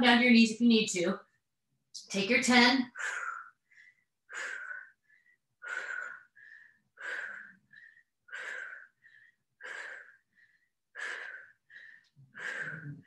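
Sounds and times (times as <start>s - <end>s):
woman breathing hard: 2.9s - 13.0s.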